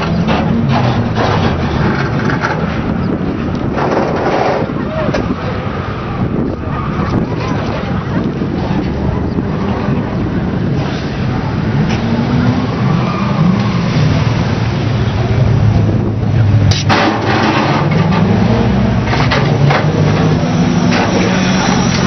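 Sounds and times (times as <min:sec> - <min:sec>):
truck engine running: 0:14.4 - 0:22.0.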